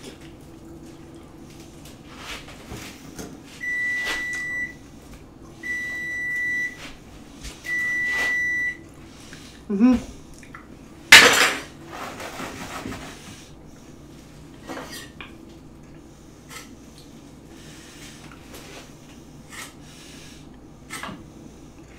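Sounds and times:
kitchen timer beeping: 3.6 - 4.8, 5.6 - 6.8, 7.7 - 8.8
kitchen utensils clattering: 11.1 - 13.2, 14.6 - 15.2.

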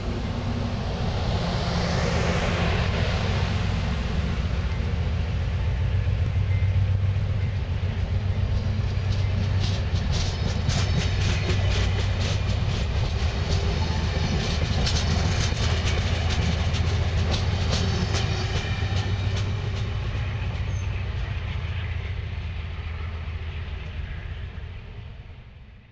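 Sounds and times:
train cars rumbling past: 0.0 - 25.9
wheels clacking over rail joints: 8.0 - 21.6.

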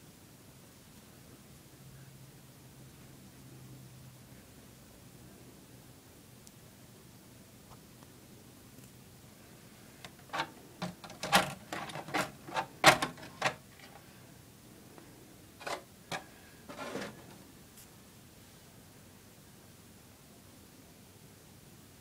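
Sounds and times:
plastic shell clicks and knocks: 10.1 - 13.9.

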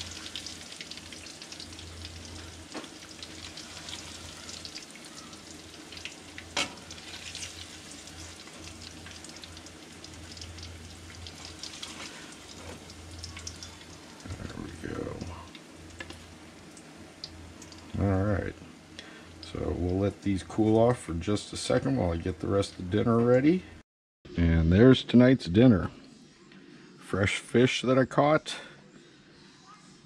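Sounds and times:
fish frying in oil: 0.0 - 18.1, 18.8 - 22.7.

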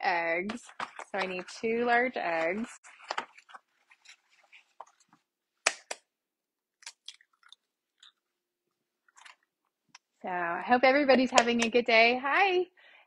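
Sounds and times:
eggs cracking over a bowl: 6.7 - 8.3.

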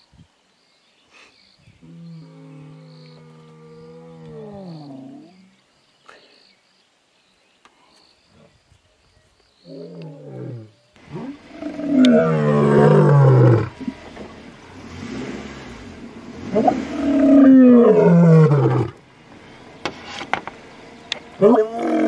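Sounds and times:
lion roaring: 9.7 - 13.9, 14.9 - 19.0, 21.4 - 22.0.

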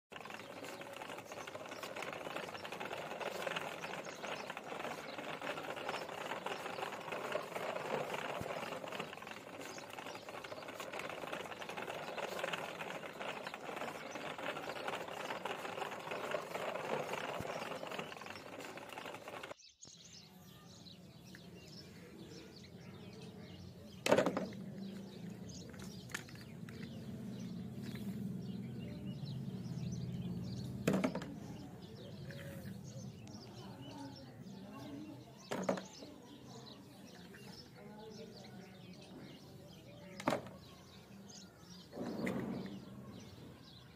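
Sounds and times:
plastic toy figures clacking: 0.1 - 19.6, 35.4 - 36.0
plastic toy wheels rattling on concrete: 0.1 - 19.6, 23.9 - 28.6, 29.2 - 37.7, 40.0 - 42.8.

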